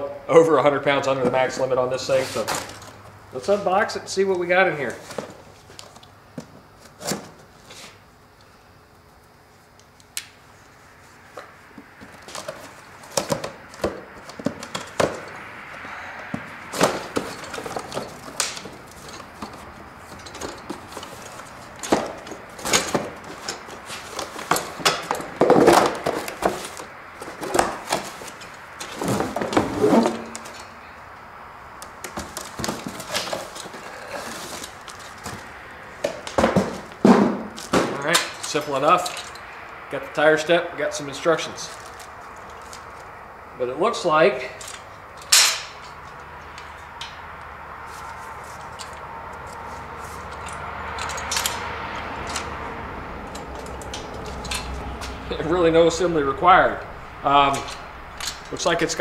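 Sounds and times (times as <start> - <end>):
cardboard rustling and scraping: 1.2 - 3.0, 4.9 - 8.0, 11.2 - 15.4, 16.3 - 30.7, 32.0 - 38.2, 47.8 - 48.8, 49.5 - 50.8.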